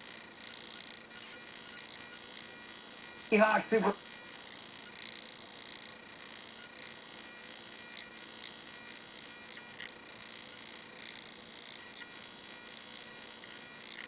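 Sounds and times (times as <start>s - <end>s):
electrical hum and hiss: 0.0s - 14.0s.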